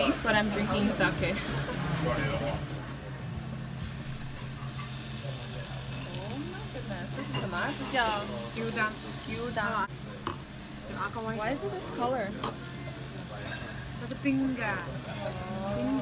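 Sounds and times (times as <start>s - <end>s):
meat sizzling on grill: 3.7s - 16.0s.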